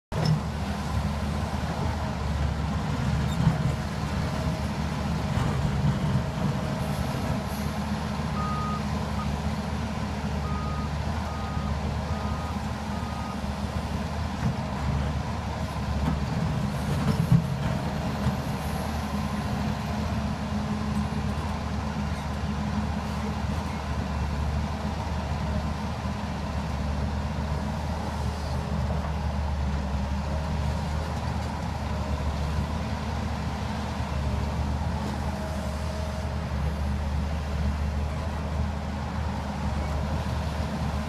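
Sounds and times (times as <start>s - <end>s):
excavator diesel engine running: 0.1s - 41.0s.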